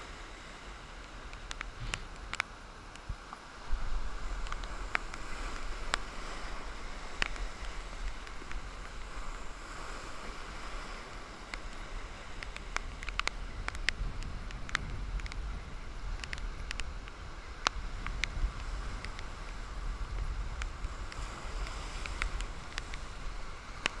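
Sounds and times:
wind rumbling on microphone: 0:00.0 - 0:24.0
surf breaking over rocks: 0:00.1 - 0:24.0
sharp ticks: 0:12.4 - 0:15.4.

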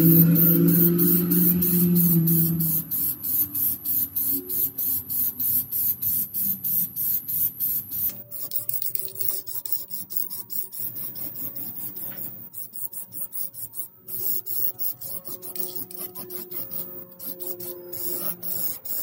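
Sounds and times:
spray paint can hissing: 0:00.0 - 0:19.0.

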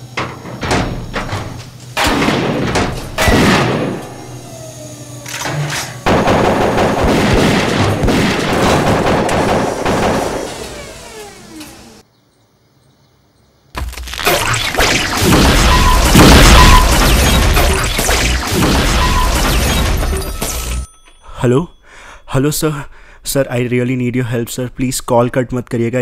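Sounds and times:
heavy metallic clanks: 0:00.0 - 0:04.4, 0:05.4 - 0:11.8, 0:14.3 - 0:21.2
dense loud noise: 0:14.3 - 0:20.2
sudden loud blast: 0:14.9 - 0:20.2.

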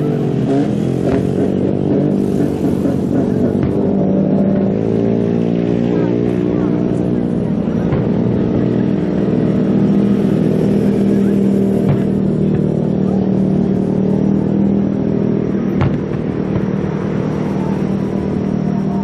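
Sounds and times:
engine drone: 0:00.0 - 0:19.0
firework bangs: 0:00.4 - 0:04.2, 0:07.4 - 0:08.9, 0:09.9 - 0:13.2, 0:15.4 - 0:18.5.

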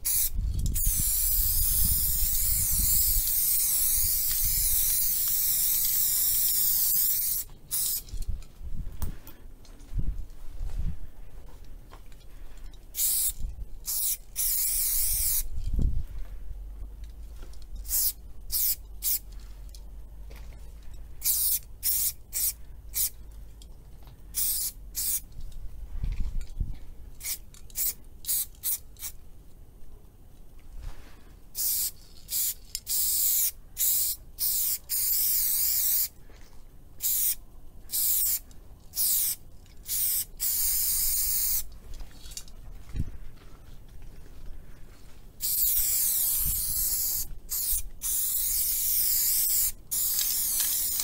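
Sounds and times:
aerosol spray can hissing: 0:00.0 - 0:08.0, 0:13.0 - 0:15.5, 0:17.9 - 0:19.2, 0:21.2 - 0:23.1, 0:31.6 - 0:36.1, 0:37.0 - 0:38.4, 0:39.0 - 0:41.7, 0:45.4 - 0:51.0.

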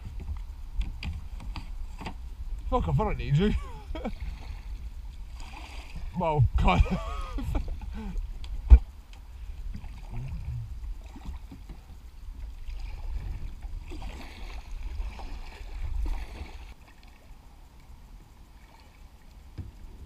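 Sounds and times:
wind rumble on microphone: 0:00.0 - 0:20.0
water splashing from paddle strokes: 0:04.0 - 0:06.4, 0:09.7 - 0:17.3.

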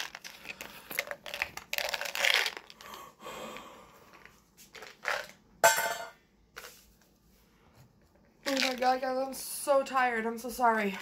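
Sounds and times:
breathy vocal sound: 0:02.8 - 0:04.1.

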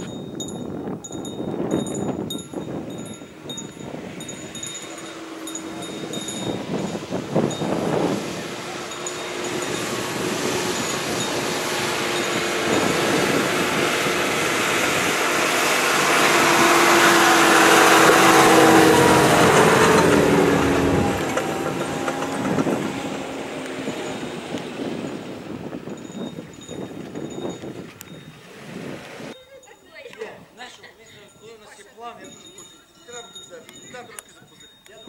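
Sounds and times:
suv driving across grass: 0:01.6 - 0:29.4.

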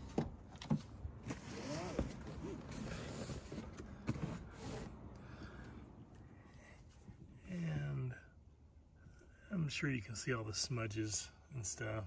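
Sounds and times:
rustling and scraping: 0:00.0 - 0:05.0.

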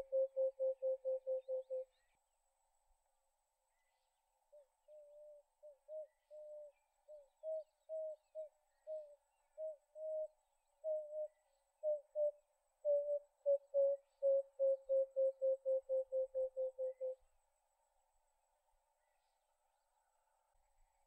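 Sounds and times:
dove cooing: 0:00.0 - 0:01.9, 0:12.9 - 0:17.2.

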